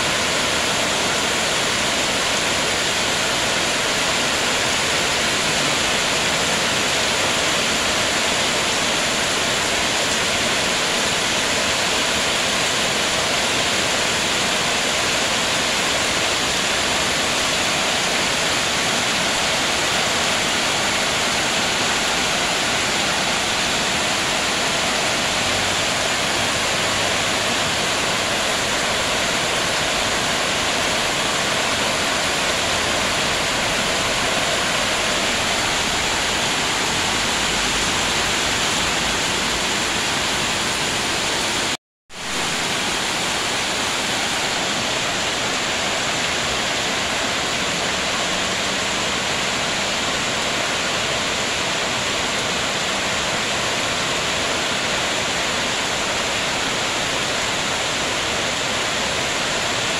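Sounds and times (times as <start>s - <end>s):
heavy rain on water: 0.0s - 59.9s.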